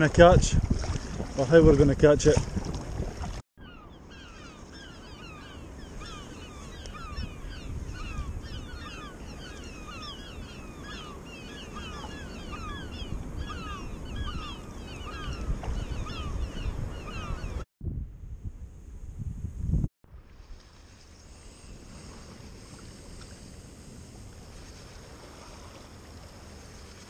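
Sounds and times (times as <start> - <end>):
wind and sea rumble: 0.0 - 27.0
seabirds chirping: 3.6 - 17.6.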